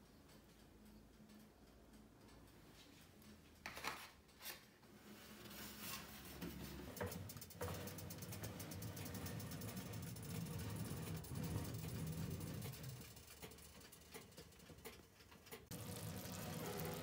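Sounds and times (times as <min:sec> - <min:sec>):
oven humming: 0:06.2 - 0:17.0.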